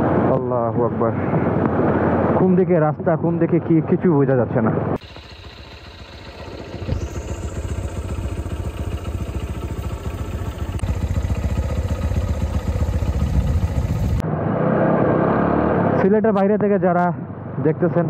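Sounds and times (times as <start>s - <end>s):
motorcycle engine idling: 5.0s - 14.2s.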